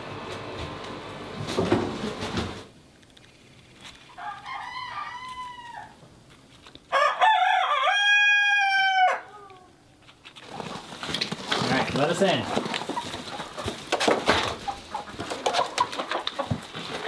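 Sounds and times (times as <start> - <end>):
noise: 0.0 - 8.6
rooster crowing: 4.1 - 6.0, 6.9 - 9.6.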